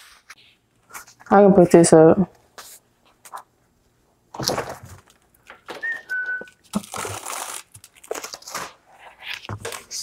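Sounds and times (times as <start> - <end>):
plastic wrap crinkling: 4.4 - 10.0.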